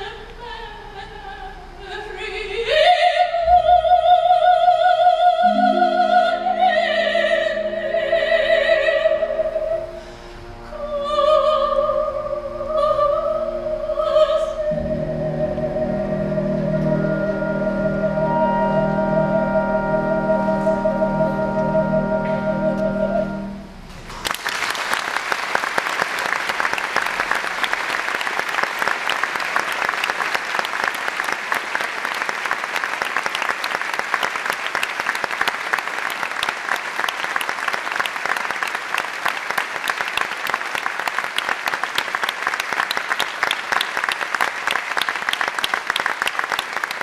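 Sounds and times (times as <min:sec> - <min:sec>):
aria music: 0:03.3 - 0:23.9
audience applauding: 0:24.2 - 0:47.0.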